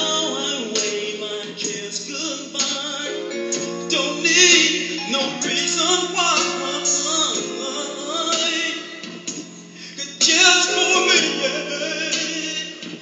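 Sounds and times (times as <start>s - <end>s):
man singing: 0.0s - 13.0s
musical backing: 0.0s - 13.0s.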